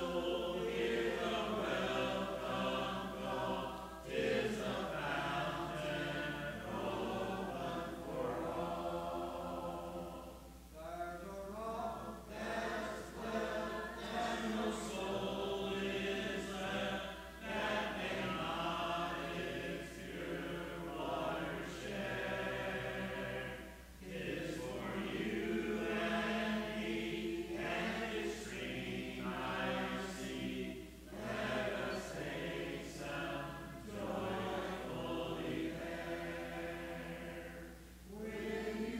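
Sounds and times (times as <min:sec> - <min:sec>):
congregation singing a hymn: 0:00.0 - 0:38.9.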